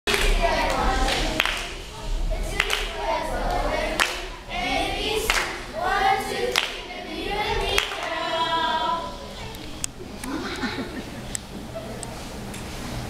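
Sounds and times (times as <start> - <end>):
sharp claps: 0.1 - 1.8, 2.6 - 3.0, 4.0 - 4.3, 5.3 - 5.6, 6.5 - 6.8
children singing: 0.1 - 9.7.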